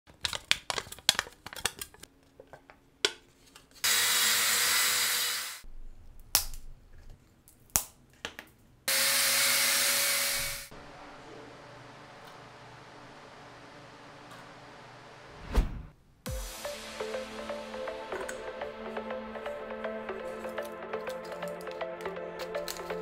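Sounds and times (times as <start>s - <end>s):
aluminium can crinkling: 0.1s - 2.7s, 20.4s - 23.0s
small electric tool humming: 3.8s - 5.6s, 8.9s - 10.7s.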